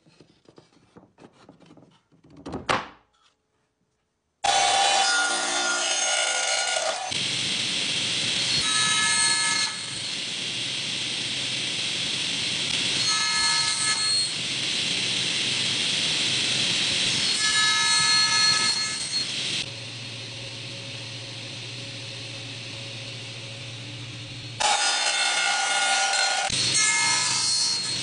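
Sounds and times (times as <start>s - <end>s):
saw blade cutting wood: 4.4s - 7.2s, 12.7s - 14.4s, 24.6s - 28.0s
table saw running: 4.4s - 20.8s, 24.2s - 28.0s.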